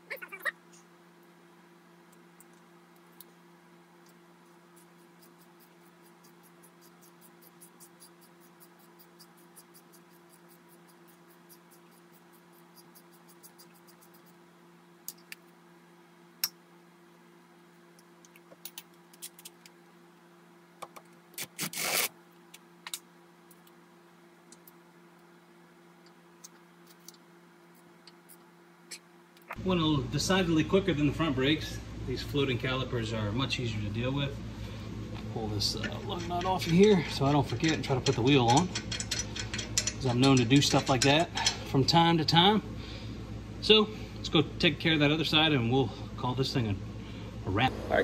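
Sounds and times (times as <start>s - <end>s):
steady low hum: 0.0s - 48.0s
faint evenly spaced ticks: 4.8s - 14.4s.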